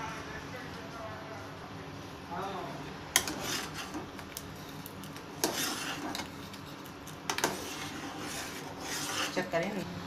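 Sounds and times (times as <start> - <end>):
pot simmering: 3.1 - 9.5
ladle scraping pot: 3.2 - 9.7.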